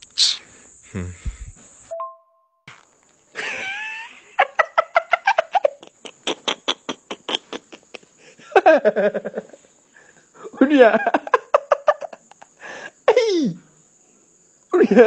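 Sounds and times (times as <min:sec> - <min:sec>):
quick evenly spaced vocal bursts: 0:00.0 - 0:01.9
short wavering vocal sound: 0:00.1 - 0:01.6.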